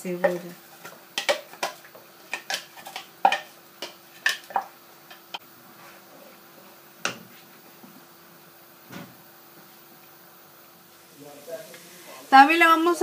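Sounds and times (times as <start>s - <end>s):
spoon knocking on frying pan: 0.2s - 5.4s
paste being stirred: 0.3s - 5.2s.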